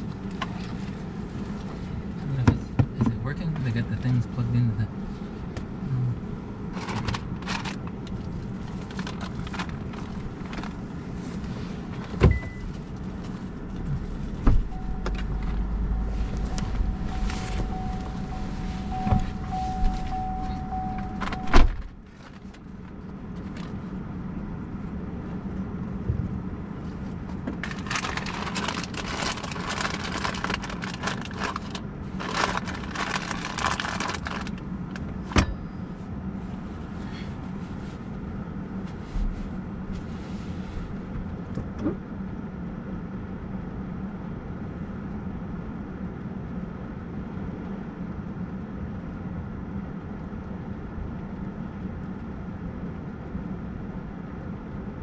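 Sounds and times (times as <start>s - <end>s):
car cabin hum: 0.0s - 42.4s
low rumble with steady tone: 0.0s - 55.0s
rushing noise: 13.8s - 21.8s.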